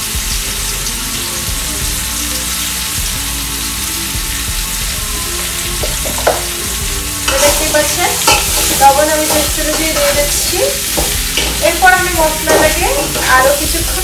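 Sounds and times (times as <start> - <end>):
pumpkin frying in oil: 0.0 - 14.0.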